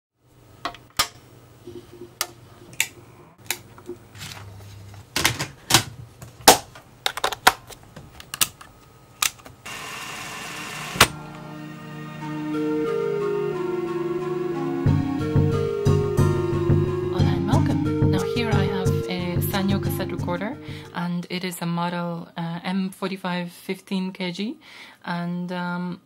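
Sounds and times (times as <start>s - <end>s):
plastic cassette clicks and clunks: 5.2s - 9.6s.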